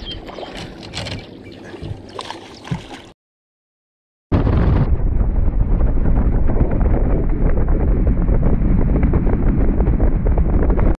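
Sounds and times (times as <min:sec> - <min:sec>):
wind buffeting microphone: 0:04.4 - 0:11.0.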